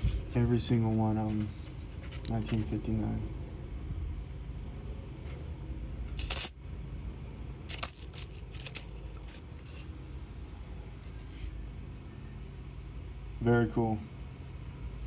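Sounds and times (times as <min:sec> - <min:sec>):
coins clinking: 0:06.2 - 0:06.6, 0:07.7 - 0:09.4.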